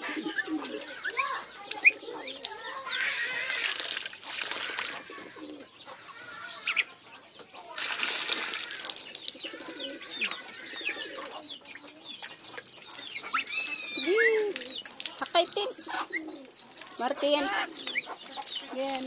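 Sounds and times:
chickens calling: 0.0 - 19.0
chick chirps: 9.3 - 18.9.

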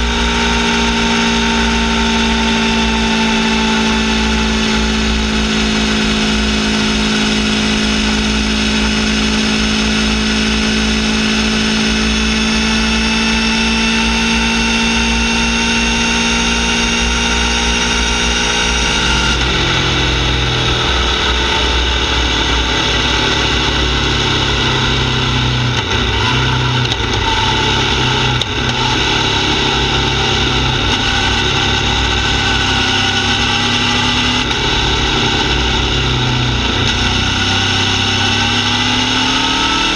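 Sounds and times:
motorcycle exhaust note: 0.0 - 39.9.

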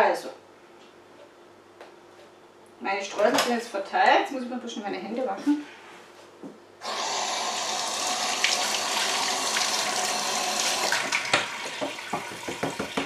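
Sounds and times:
tap running: 6.8 - 13.0
water splashes and knocks: 11.1 - 13.0.

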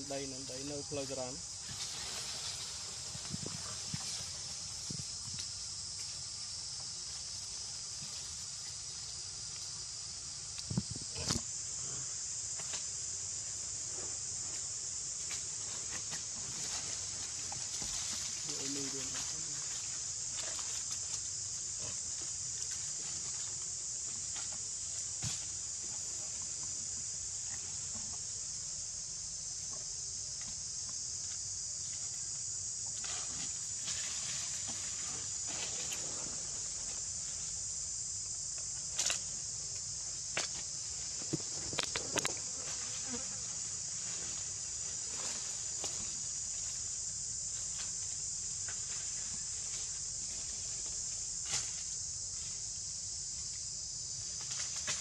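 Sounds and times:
insects chorus: 0.0 - 55.0.

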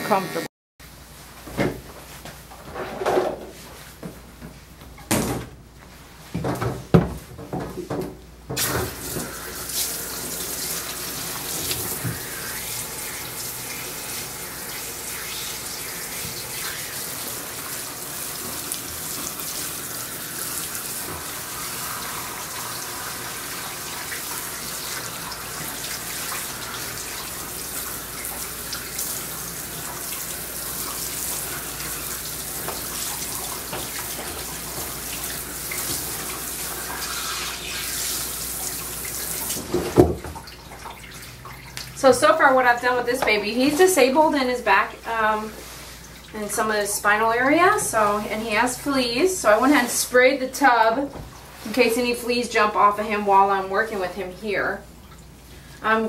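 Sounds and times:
water splashing into bathtub: 8.5 - 42.0
hose spraying water: 8.6 - 39.8.

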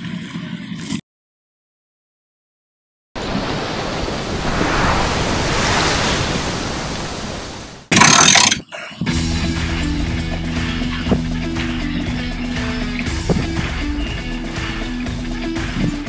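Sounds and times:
rushing surf-like sound: 3.2 - 7.9
music with steady notes: 9.0 - 16.0.

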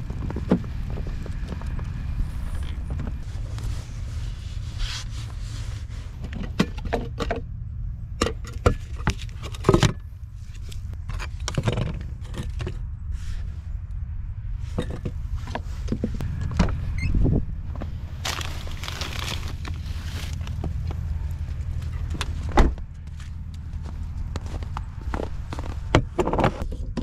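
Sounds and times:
steady low rumble: 0.0 - 26.7
camping gear clicking and rattling: 18.2 - 20.8.

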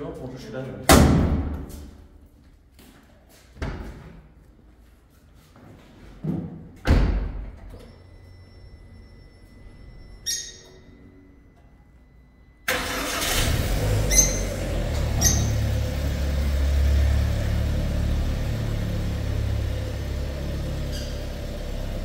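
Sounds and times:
faint high-pitched tone: 7.7 - 12.7.

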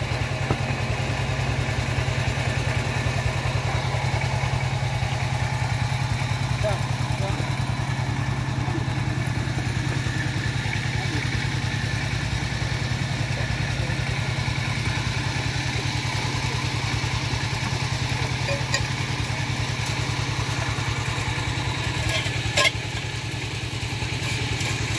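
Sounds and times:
small engine running: 0.0 - 24.9
sharp clatter: 21.8 - 23.2.

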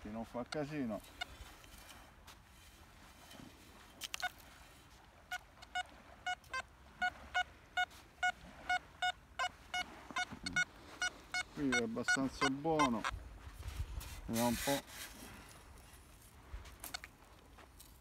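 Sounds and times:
metal detector short beeps: 5.3 - 13.1.

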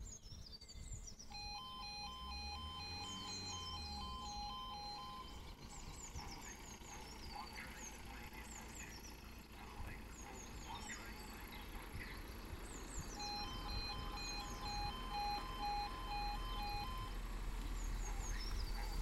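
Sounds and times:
small birds chirping: 0.0 - 19.0
faint low rumble: 0.4 - 19.0
two-tone warning alarm: 1.3 - 7.0, 13.2 - 17.3.

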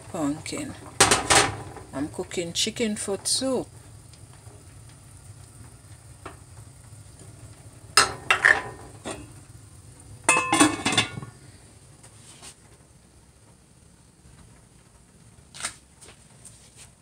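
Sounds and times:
steady low hum: 0.0 - 16.8
pot lid clattering on metal: 1.0 - 1.7, 8.0 - 9.3, 10.3 - 11.3.

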